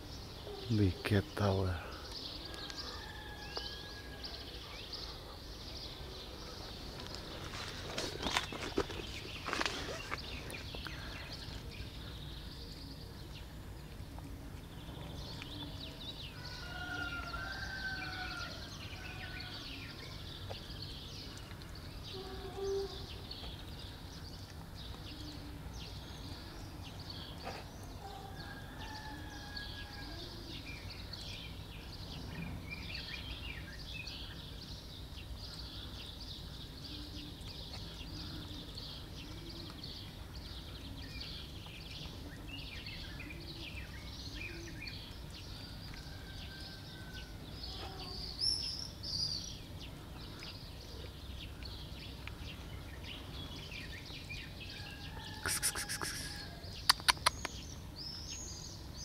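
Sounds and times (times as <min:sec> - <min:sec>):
cat chewing wet food: 0:21.3 - 0:21.9.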